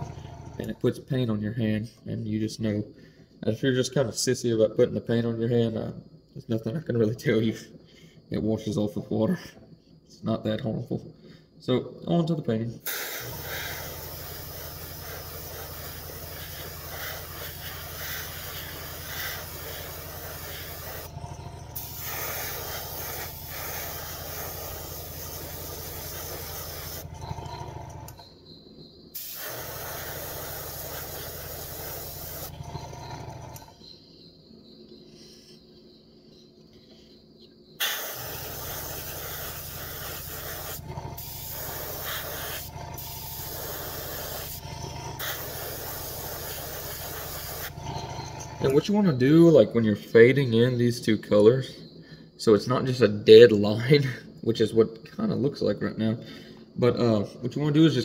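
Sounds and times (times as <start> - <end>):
air compressor hum: 0.0 - 0.9, 12.8 - 28.4, 29.1 - 33.9, 37.8 - 49.0
airbrush spraying hiss: 12.8 - 21.1, 21.8 - 27.1, 29.2 - 32.5, 37.8 - 44.6, 45.2 - 47.8.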